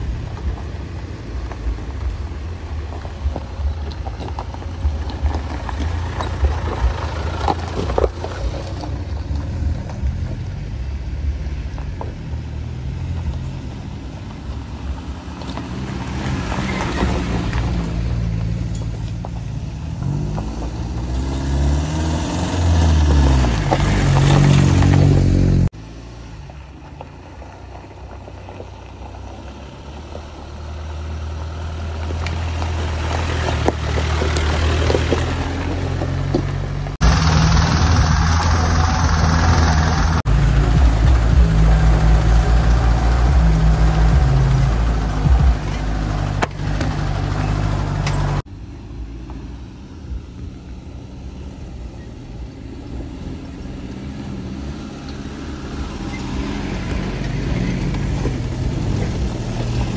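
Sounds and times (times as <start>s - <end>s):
suv engine on gravel track: 0.0s - 59.9s.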